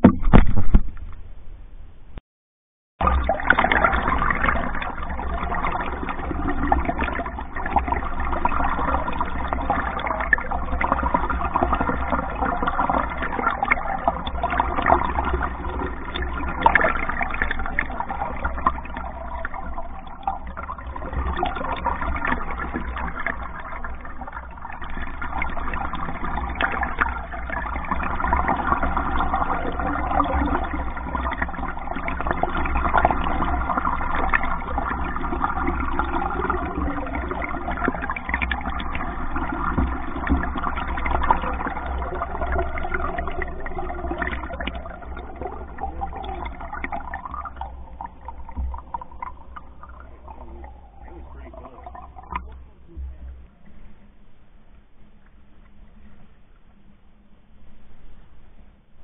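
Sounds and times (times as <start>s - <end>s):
low rumble: 41.7s - 59.0s.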